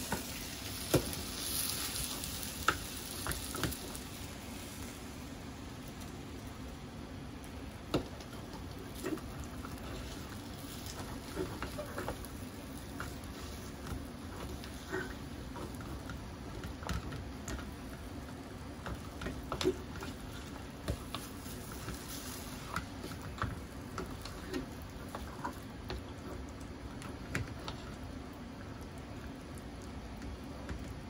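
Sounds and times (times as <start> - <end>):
gas burner hissing: 0.0 - 28.8
spatula scraping a pan: 8.8 - 16.1, 18.9 - 23.4.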